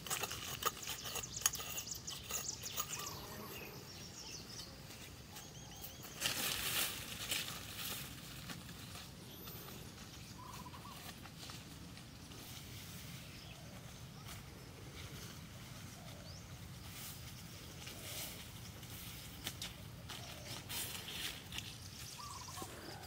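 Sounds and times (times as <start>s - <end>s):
faint bird calls: 0.9s - 6.2s, 9.2s - 11.6s, 17.8s - 23.0s
footsteps through dry leaves: 5.1s - 23.0s.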